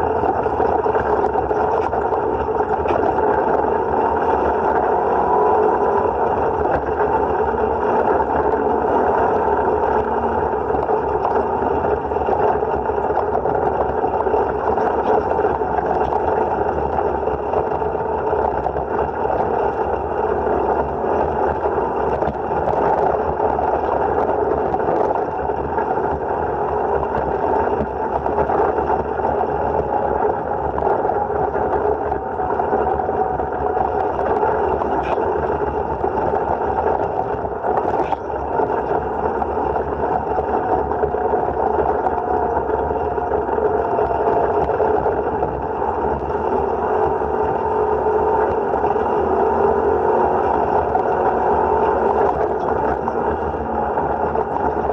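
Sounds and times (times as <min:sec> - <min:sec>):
vehicle engine drone: 0:00.0 - 0:54.9.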